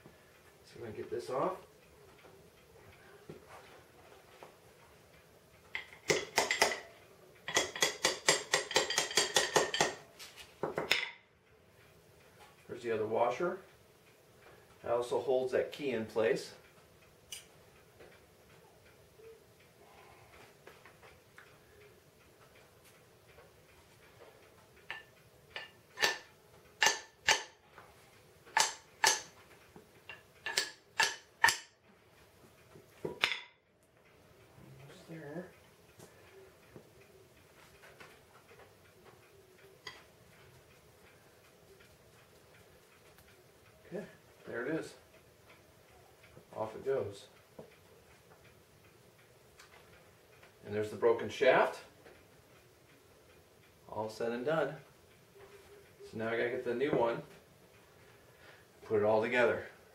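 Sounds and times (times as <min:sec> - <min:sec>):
hammer tapping on steel shaft: 0:05.8 - 0:11.2, 0:24.8 - 0:27.6, 0:28.5 - 0:31.8
metal-on-metal knocks with ring: 0:10.7 - 0:11.2, 0:33.1 - 0:33.6.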